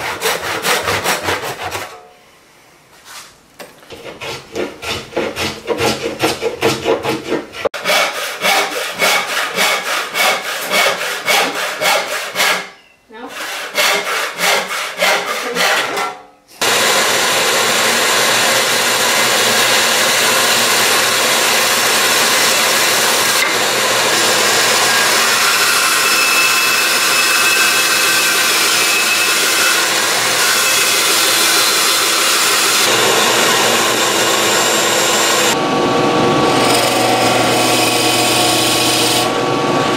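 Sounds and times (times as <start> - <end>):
handsaw cutting wood: 0.0 - 2.0, 3.9 - 35.6, 36.5 - 39.9
band saw running: 16.6 - 39.9.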